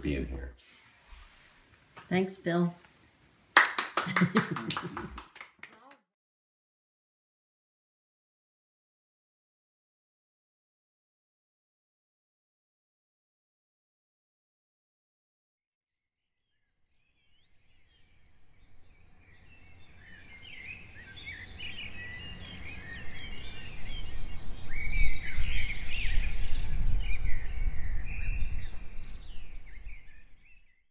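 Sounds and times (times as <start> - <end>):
birds chirping and singing: 17.2 - 30.8.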